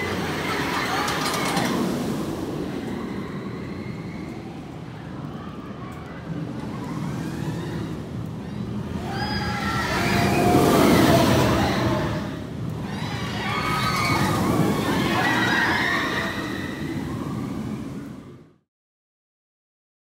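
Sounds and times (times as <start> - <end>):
riders screaming: 0.0 - 4.3, 6.8 - 17.5
roller coaster rumbling on track: 0.0 - 18.5.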